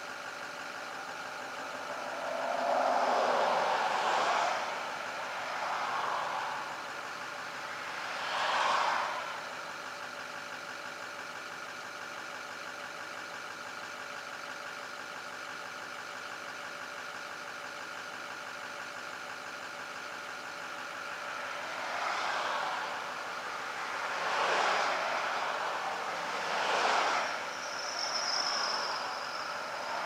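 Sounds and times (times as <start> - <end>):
engine idling: 0.0 - 30.0
car driving past: 1.1 - 9.4, 21.5 - 30.0.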